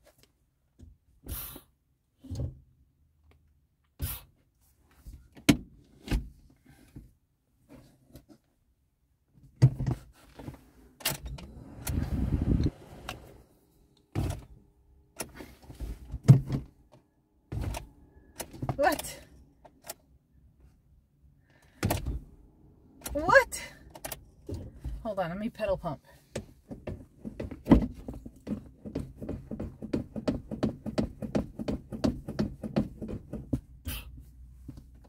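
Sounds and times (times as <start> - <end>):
car starter motor cranking: 11.0 - 14.4
clicks and knocks from controls: 26.3 - 33.8.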